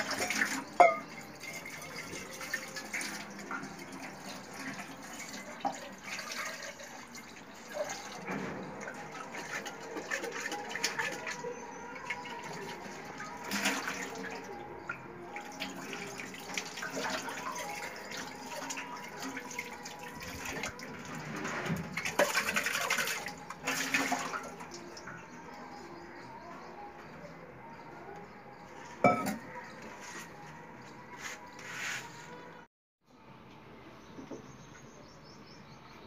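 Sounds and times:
tap water running into sink: 0:00.0 - 0:11.2.

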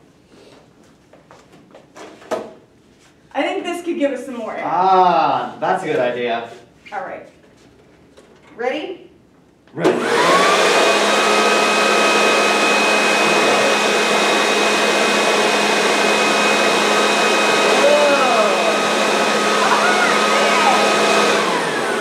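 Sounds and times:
leaf blower whining: 0:09.8 - 0:22.0.

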